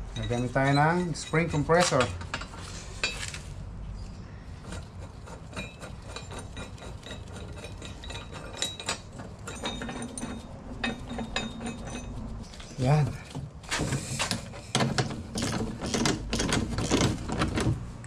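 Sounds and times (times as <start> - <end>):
metallic clinks and taps: 5.5 - 12.7.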